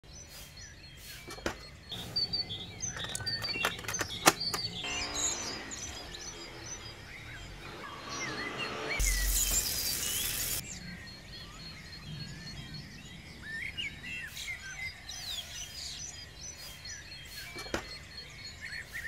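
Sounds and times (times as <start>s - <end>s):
small birds chirping: 0.0s - 19.0s
sharp clicks and taps: 2.9s - 4.9s.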